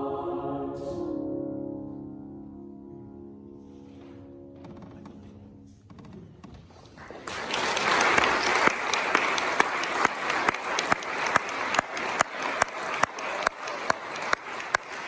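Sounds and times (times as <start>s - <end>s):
audience applauding: 6.7s - 15.0s
nearby person clapping steadily: 7.2s - 15.0s.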